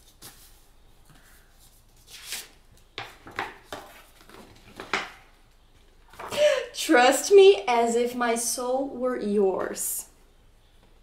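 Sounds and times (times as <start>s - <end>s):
book pages rustling: 0.0s - 6.3s.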